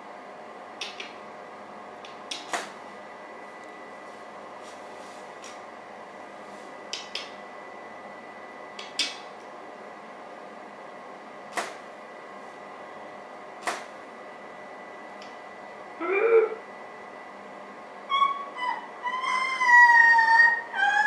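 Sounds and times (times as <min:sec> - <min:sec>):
electrical hum: 0:00.0 - 0:21.0.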